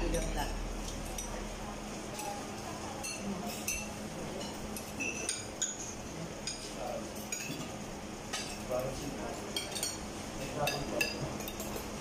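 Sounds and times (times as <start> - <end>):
cutlery clinking on plates: 3.0 - 12.0.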